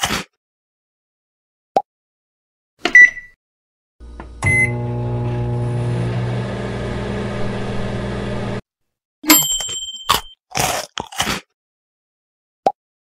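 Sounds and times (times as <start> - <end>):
microwave beep: 2.9 - 3.4, 4.4 - 6.6
microwave humming: 4.0 - 8.6
microwave start click: 4.0 - 8.6.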